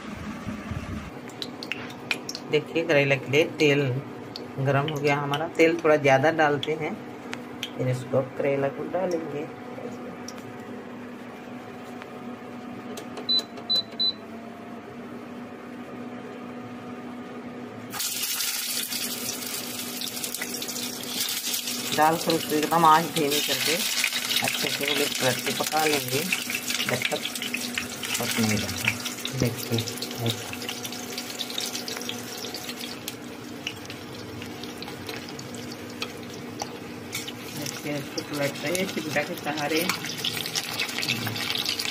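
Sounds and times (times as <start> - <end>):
low hum: 0.0 - 2.1
induction cooktop humming: 0.0 - 41.9
oil sizzling loudly: 17.9 - 41.9.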